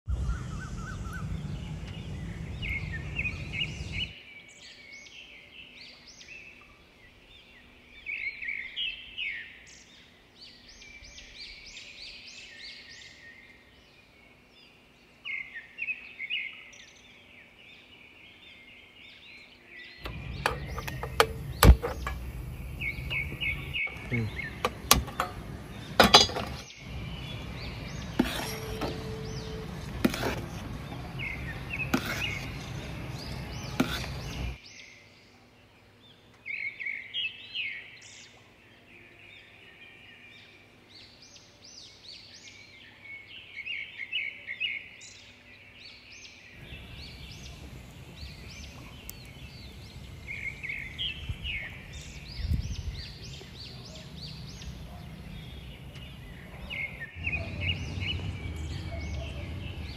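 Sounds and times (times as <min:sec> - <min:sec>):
small birds chirping: 0:00.1 - 0:59.9
steady background noise: 0:17.2 - 0:36.4, 0:46.6 - 0:59.9
metal cookware knocking: 0:20.1 - 0:22.4, 0:24.6 - 0:26.6.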